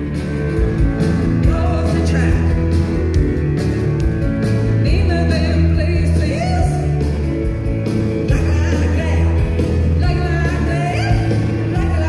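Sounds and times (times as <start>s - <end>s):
live rock band playing: 0.0s - 12.0s
woman singing: 1.4s - 2.5s, 4.8s - 6.9s, 8.2s - 12.0s.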